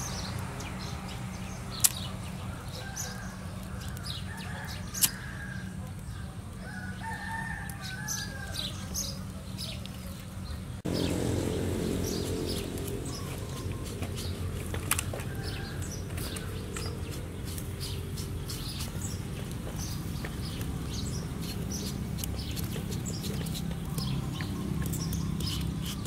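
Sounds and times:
steady low hum: 0:10.7 - 0:15.0.

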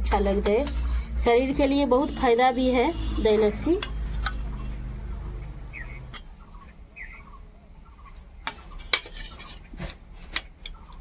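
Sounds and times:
faint bird chirps: 0:04.6 - 0:08.8
spoon clinking and scraping a plate: 0:08.7 - 0:09.7.

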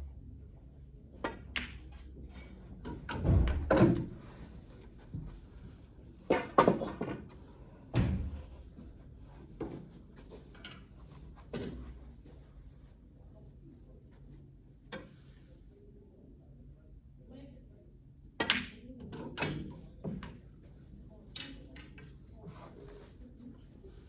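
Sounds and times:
snooker balls clicking: 0:01.2 - 0:02.0.

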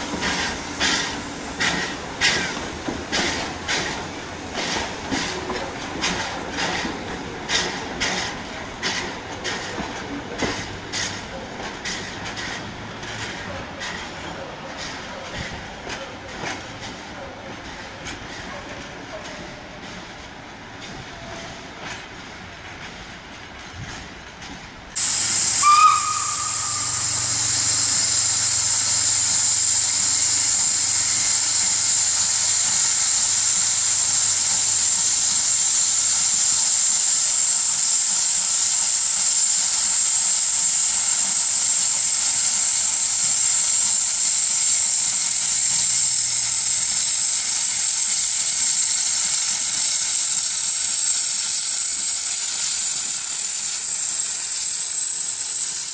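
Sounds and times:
steam locomotive hissing: 0:00.0 - 0:55.9
steam whistle note: 0:25.0 - 0:29.6.

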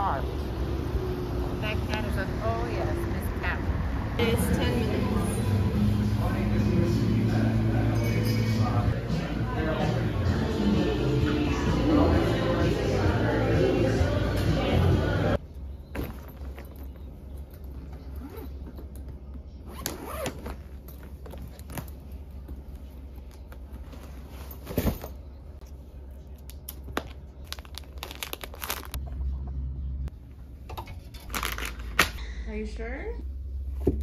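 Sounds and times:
steady low hum: 0:00.0 - 0:34.0
rustling and crinkling: 0:15.9 - 0:25.9, 0:26.7 - 0:29.3, 0:31.0 - 0:32.0.

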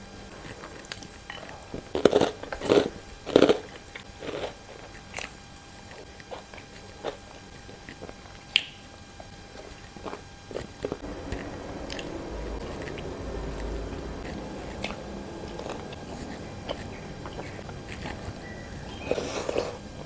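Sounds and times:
person crunching rice cracker: 0:00.3 - 0:08.7, 0:09.5 - 0:11.0.

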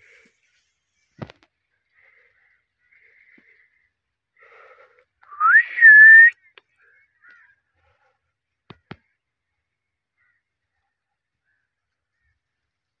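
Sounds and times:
parakeet whistle: 0:05.3 - 0:06.3.

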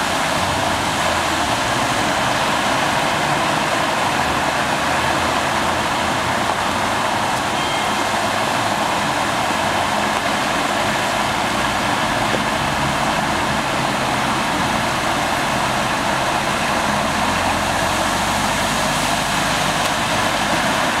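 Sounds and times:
car driving through water: 0:00.0 - 0:21.0
car engines running low: 0:00.0 - 0:21.0
floodwater rushing: 0:00.0 - 0:21.0.

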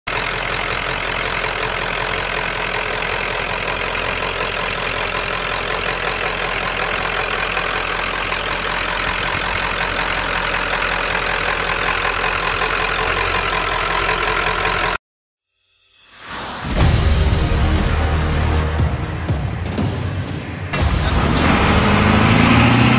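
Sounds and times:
diesel truck engine idling: 0:00.1 - 0:15.0.

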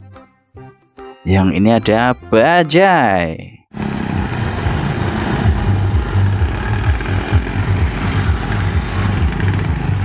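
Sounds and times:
auto-rickshaw engine chugging: 0:03.7 - 0:10.0.

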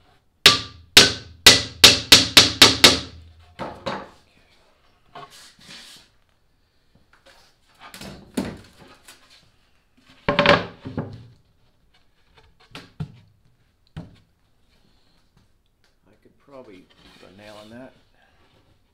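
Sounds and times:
wooden thunks and knocks: 0:03.6 - 0:04.2, 0:08.0 - 0:08.9, 0:10.3 - 0:11.3, 0:14.0 - 0:14.3
plywood panel scraping: 0:05.1 - 0:06.1, 0:16.6 - 0:18.6.

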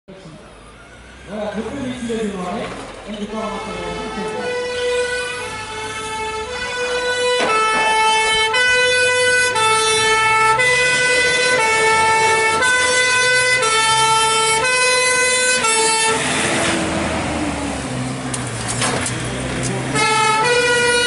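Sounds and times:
fire truck engine rushing past: 0:00.2 - 0:21.0
two-tone siren: 0:03.6 - 0:16.3, 0:19.9 - 0:21.0.

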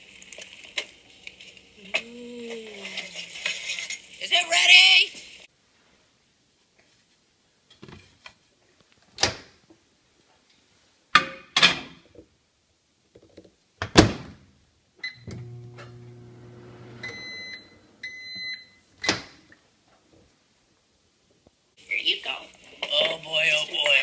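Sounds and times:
microwave oven humming: 0:15.0 - 0:19.2
microwave beeps: 0:15.0 - 0:19.3.

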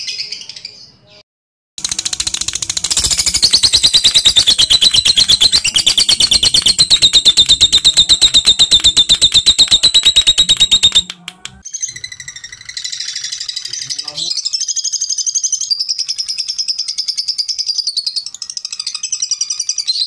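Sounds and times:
lovebird chirps: 0:01.8 - 0:20.0
lovebird shrill trill: 0:02.8 - 0:20.0.

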